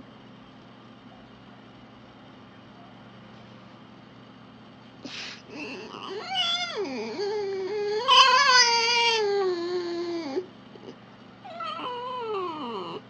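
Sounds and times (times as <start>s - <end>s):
fox whining: 5.0s - 13.0s.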